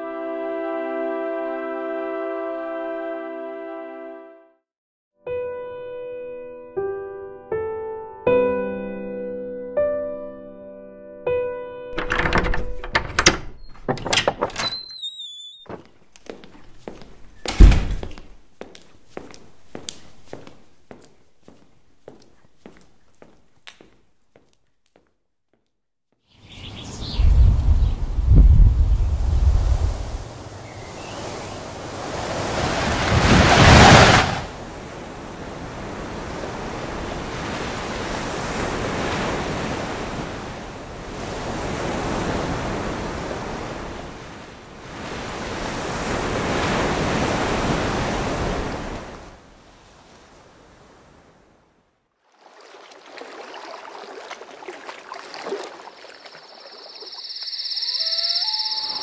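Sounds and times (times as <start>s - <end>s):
wind: 12.0s - 24.0s, 26.2s - 59.0s
rushing sea: 26.4s - 59.0s
faint night ambience: 28.8s - 33.9s, 52.4s - 59.0s
brief chirps: 56.5s - 59.0s.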